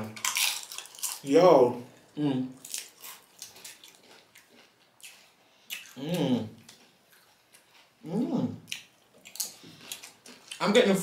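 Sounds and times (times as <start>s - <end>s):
chips crunching while chewed: 0.2s - 1.3s, 2.6s - 6.0s
person humming mm: 2.2s - 2.6s, 5.9s - 6.6s.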